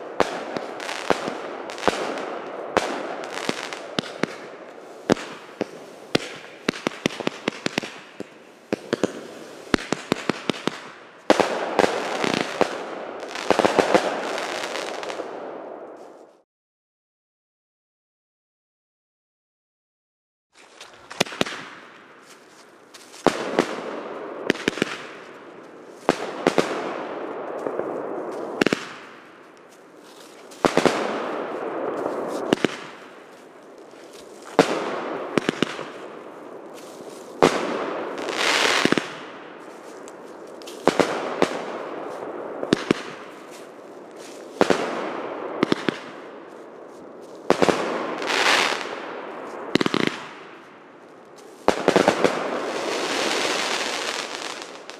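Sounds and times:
firework bangs with crackling: 0.0s - 15.3s, 21.0s - 21.9s, 23.2s - 25.4s, 26.0s - 29.3s, 30.4s - 33.4s, 34.4s - 36.2s, 37.3s - 39.4s, 40.6s - 43.5s, 44.4s - 46.3s, 47.4s - 50.6s, 51.6s - 54.9s.

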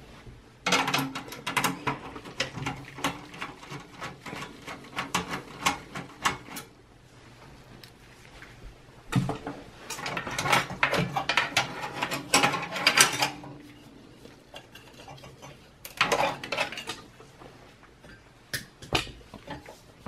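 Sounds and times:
metal parts clinking and rattling: 9.9s - 13.6s, 14.5s - 17.1s.

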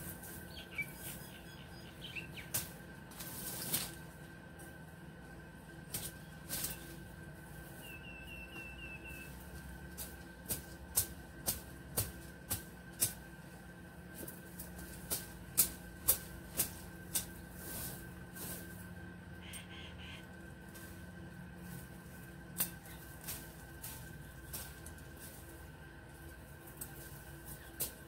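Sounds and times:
bird chirping: 0.5s - 2.6s, 7.8s - 9.4s
hand tool snapping stems: 2.5s - 4.0s, 5.9s - 6.9s, 9.5s - 13.3s, 14.2s - 17.4s, 22.5s - 25.4s, 26.7s - 28.0s.

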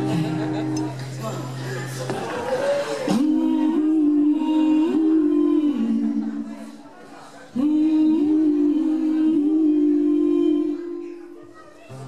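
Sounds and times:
women singing in harmony: 2.9s - 6.8s, 7.4s - 11.4s.

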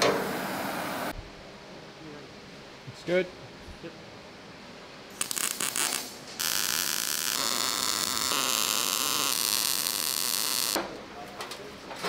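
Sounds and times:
welding arc crackling: 5.1s - 10.8s.

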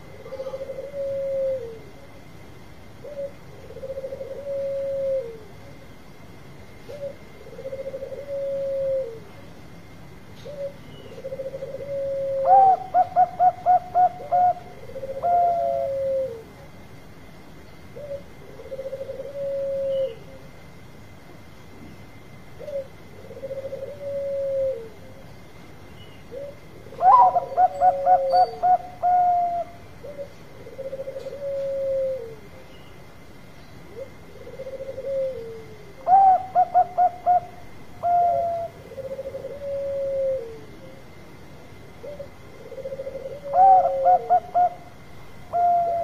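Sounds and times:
dove cooing: 0.0s - 2.2s, 3.0s - 5.7s, 6.8s - 9.4s, 10.4s - 16.7s, 18.0s - 20.5s, 22.6s - 25.3s, 26.2s - 32.7s, 33.8s - 41.2s, 41.9s - 46.0s
dove stuttering call: 10.4s - 16.5s, 26.3s - 32.4s, 33.9s - 41.0s, 42.0s - 44.9s, 45.5s - 46.0s.

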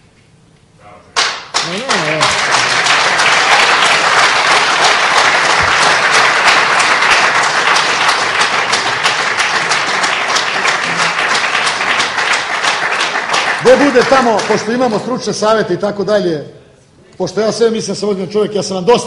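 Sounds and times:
crowd applauding: 1.2s - 15.2s.

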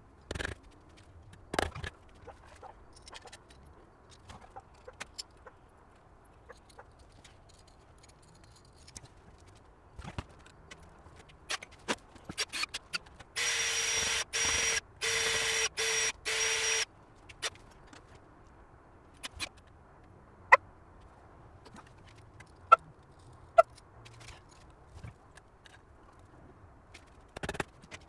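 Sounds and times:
cordless power drill running: 13.4s - 16.8s.

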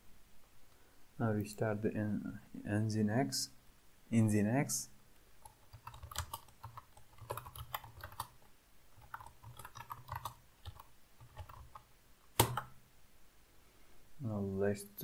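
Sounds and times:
computer keyboard typing: 5.4s - 12.8s.

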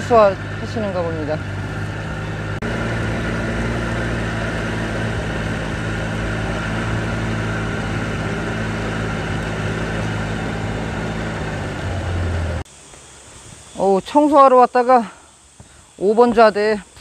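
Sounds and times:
boat motor droning: 0.0s - 12.7s
wind: 0.0s - 17.0s.

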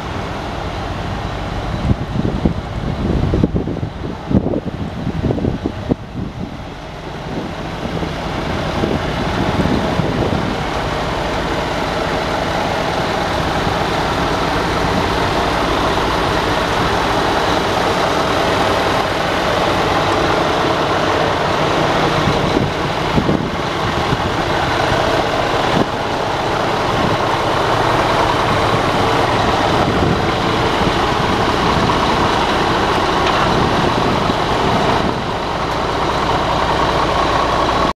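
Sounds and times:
diesel truck engine running: 0.0s - 38.0s.

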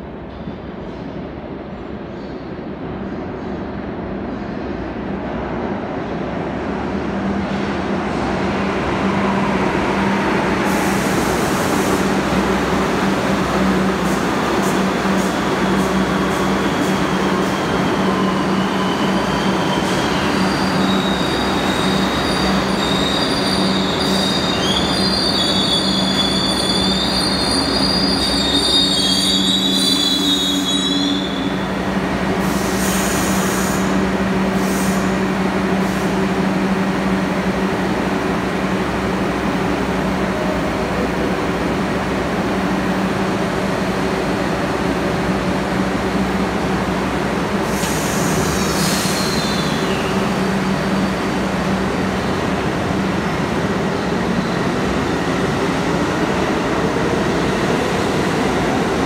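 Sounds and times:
subway train rumbling and braking: 0.0s - 59.0s
wheel and brake squeals: 17.6s - 31.7s, 47.8s - 50.3s.

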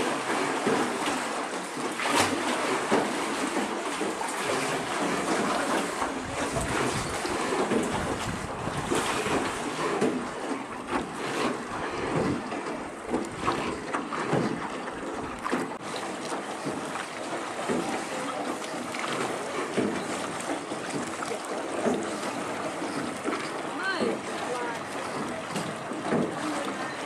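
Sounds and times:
oar strokes splashing: 0.0s - 27.0s
water lapping around boat: 0.0s - 27.0s
wind buffeting microphone: 6.0s - 10.4s.

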